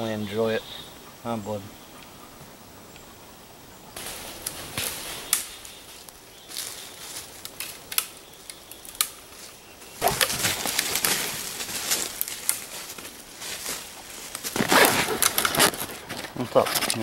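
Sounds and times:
branches rustling: 0:01.7 - 0:17.0
twigs snapping: 0:04.0 - 0:17.0.

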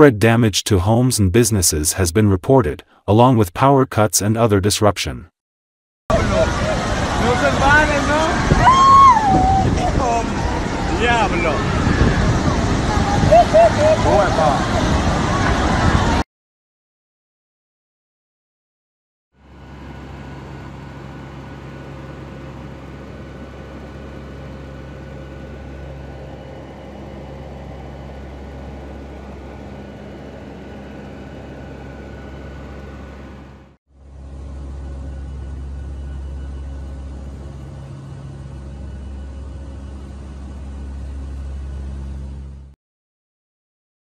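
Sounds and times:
turboprop aircraft cabin drone: 0:06.1 - 0:16.2, 0:19.4 - 0:42.8.

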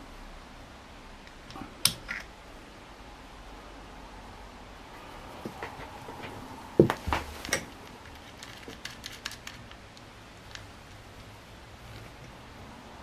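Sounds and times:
rifle parts clicking and knocking: 0:06.9 - 0:11.0.

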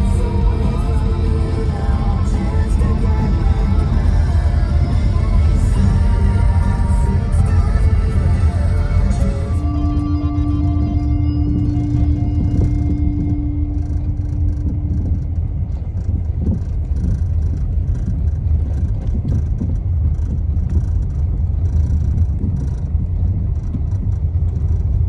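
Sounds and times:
held music note: 0:00.0 - 0:17.2
car cabin road and engine noise: 0:00.0 - 0:25.0.

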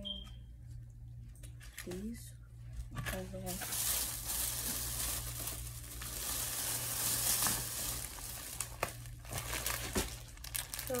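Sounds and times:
steady low hum: 0:00.0 - 0:11.0
plastic packaging rustling: 0:02.8 - 0:11.0.

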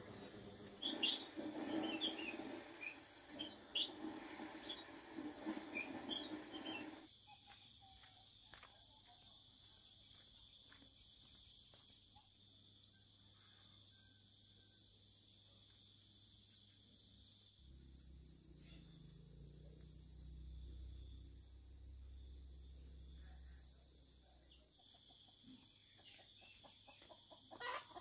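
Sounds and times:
insects trilling: 0:00.0 - 0:28.0.

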